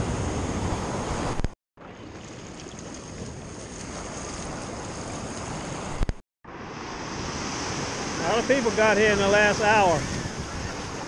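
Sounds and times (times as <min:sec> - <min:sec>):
ocean surf: 0:00.0 - 0:11.0
wind noise on microphone: 0:09.2 - 0:11.0.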